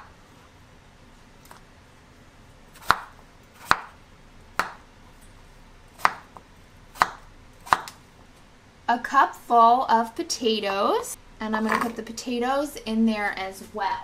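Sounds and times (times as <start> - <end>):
knife chopping on cutting board: 2.8 - 4.0, 4.6 - 4.8, 6.0 - 8.0.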